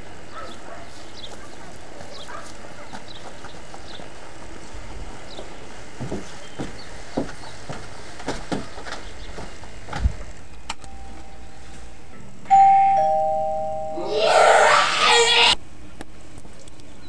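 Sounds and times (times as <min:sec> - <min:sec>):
footsteps on wooden steps: 0:01.0 - 0:10.3
two-tone doorbell chime: 0:10.8 - 0:11.9, 0:12.5 - 0:14.3
loud noisy sound: 0:14.0 - 0:15.6.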